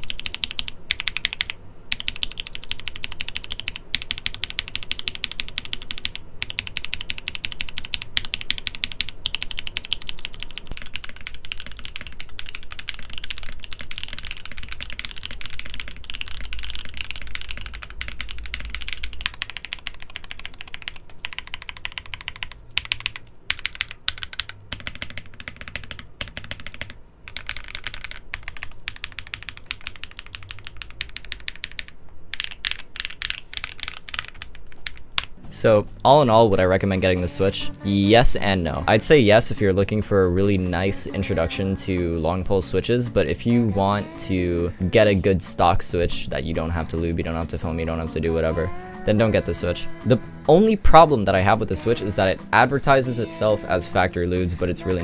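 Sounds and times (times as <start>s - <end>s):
typing on mechanical keyboard: 0.0s - 35.3s.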